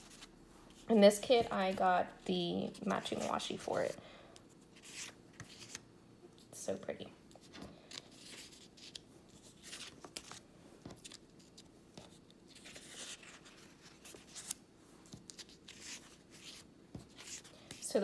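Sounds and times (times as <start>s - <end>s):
paper sheets rustling: 7.4s - 18.0s.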